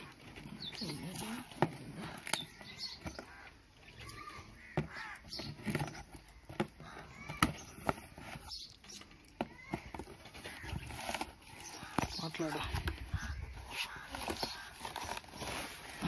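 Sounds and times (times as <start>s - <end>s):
crows cawing: 2.0s - 7.7s, 9.5s - 16.0s
cardboard flaps clicking and scraping: 4.6s - 16.0s.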